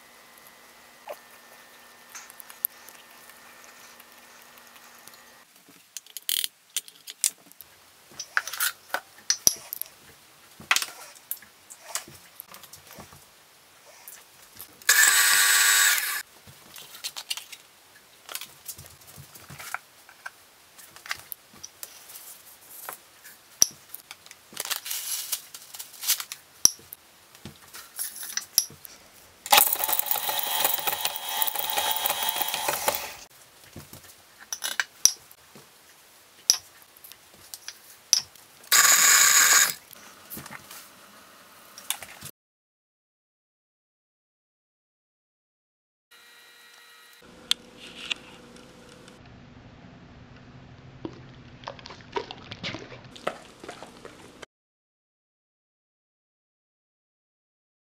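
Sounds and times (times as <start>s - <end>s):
stand mixer motor whining: 14.9s - 16.2s, 29.5s - 33.3s.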